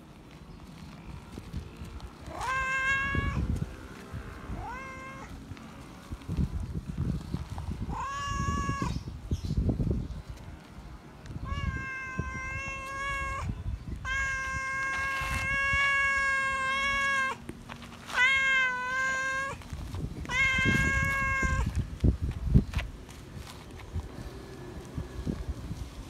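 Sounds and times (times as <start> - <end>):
cat meowing loudly: 2.3 - 3.5, 4.5 - 5.4, 7.9 - 9.0, 11.4 - 17.4, 18.0 - 19.6, 20.2 - 21.8.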